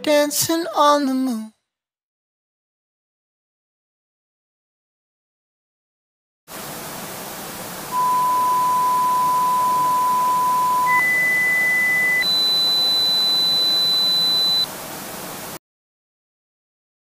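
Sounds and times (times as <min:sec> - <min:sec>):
steady hiss: 0:06.5 - 0:12.2, 0:13.9 - 0:15.6
electronic pure tones: 0:07.9 - 0:14.7.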